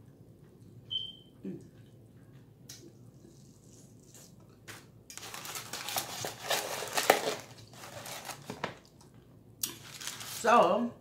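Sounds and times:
paper wrapper crinkling: 5.1s - 9.0s, 9.7s - 10.5s
foam container rustling: 5.2s - 8.8s, 9.8s - 10.6s.

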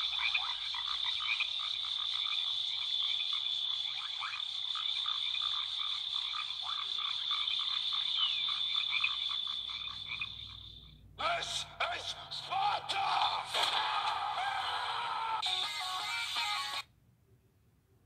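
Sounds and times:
frogs croaking and chirping: 0.0s - 13.4s.

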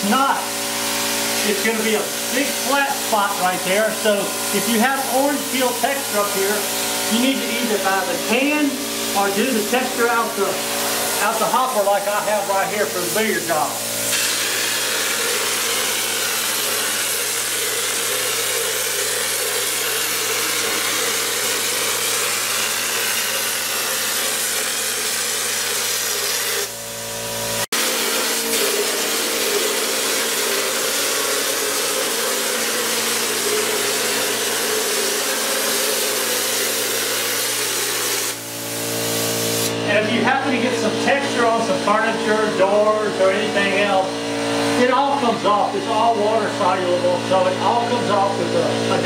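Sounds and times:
compressed air hissing: 0.0s - 39.8s.

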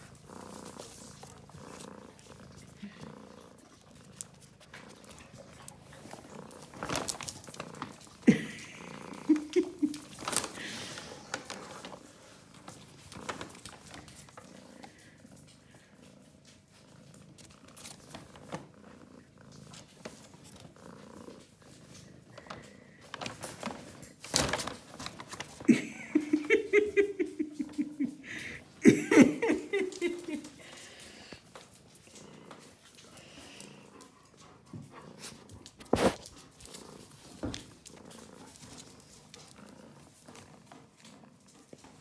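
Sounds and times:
paper bag rustling and crinkling: 6.0s - 14.8s, 21.8s - 26.3s.

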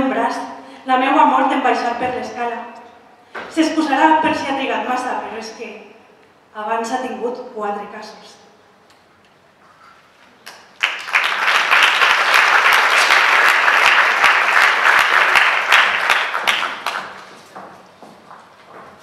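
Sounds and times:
audience applauding: 10.5s - 17.3s.

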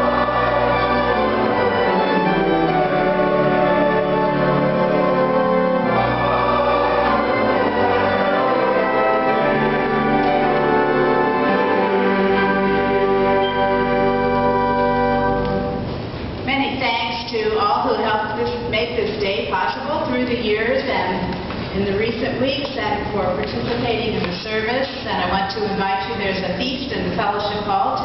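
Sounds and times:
violin sustained notes: 0.0s - 15.9s
upright piano chords: 0.0s - 16.4s.

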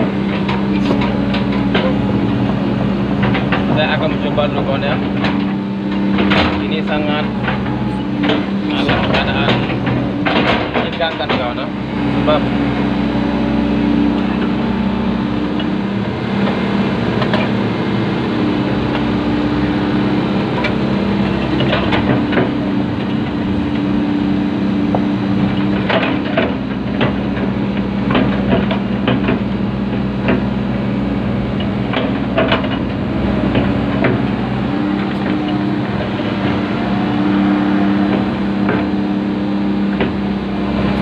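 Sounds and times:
knocks and clanks: 0.0s - 12.8s, 15.4s - 41.0s
excavator engine and hydraulics: 0.0s - 41.0s.

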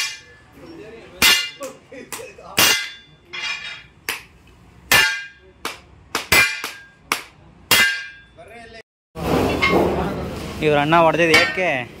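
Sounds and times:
hammer striking steel: 0.0s - 0.5s, 1.2s - 4.3s, 4.9s - 8.4s, 11.3s - 11.8s.

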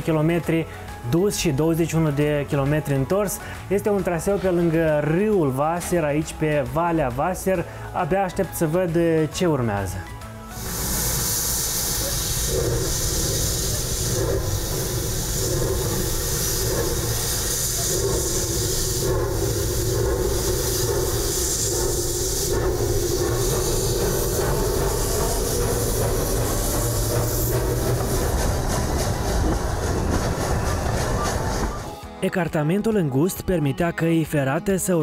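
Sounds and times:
steam locomotive hissing steam: 1.8s - 9.0s, 9.8s - 32.2s
low rumbling drone: 10.3s - 32.1s.

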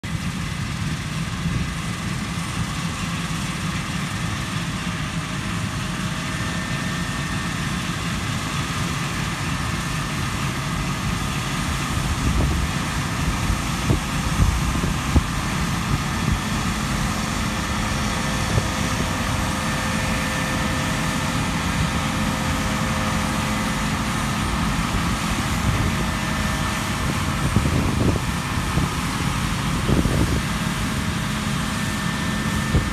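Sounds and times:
combine harvester running: 0.0s - 32.9s.

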